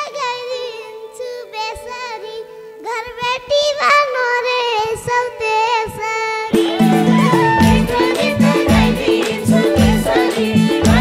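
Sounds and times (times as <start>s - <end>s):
boy singing folk melody: 0.0s - 10.2s
steady held note: 6.5s - 10.2s.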